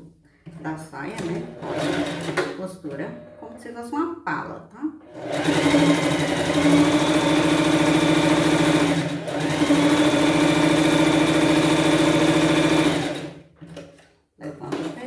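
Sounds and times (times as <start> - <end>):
sewing machine stitching: 1.2 - 3.6, 5.0 - 13.5.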